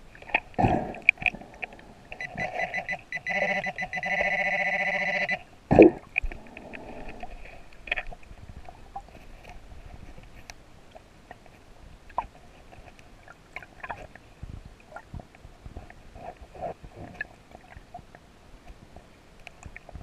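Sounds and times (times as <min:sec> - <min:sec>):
faint clicks and gurgles: 0:00.0 - 0:20.0
metal detector beeping: 0:02.2 - 0:05.4.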